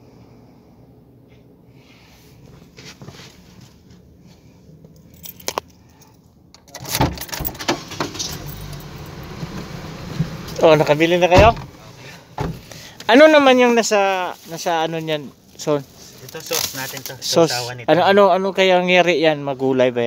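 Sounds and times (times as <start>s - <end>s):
outside noise: 0.0s - 20.0s.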